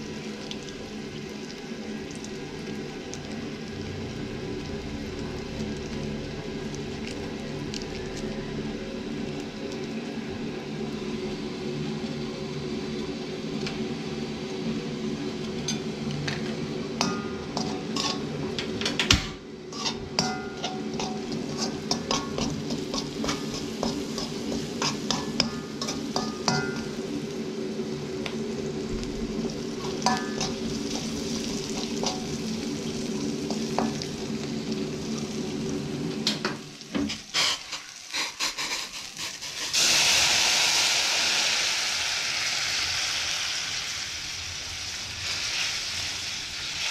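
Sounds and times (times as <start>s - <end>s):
food sizzling: 0.0s - 46.9s
steady low hum: 0.8s - 36.5s
utensil scraping and clinking pan: 17.0s - 19.1s, 19.7s - 27.0s.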